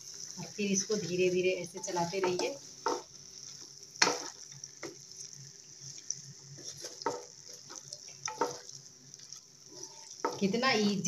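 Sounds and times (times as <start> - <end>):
frying sizzle: 0.0 - 11.0
spatula scraping pan: 6.6 - 11.0.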